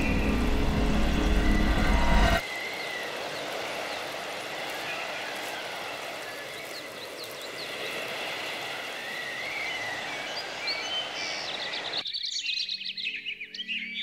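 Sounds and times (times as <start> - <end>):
low held ambient music tone: 0.0 - 2.4
birds chirping: 0.0 - 14.0
steady hiss: 2.4 - 12.0.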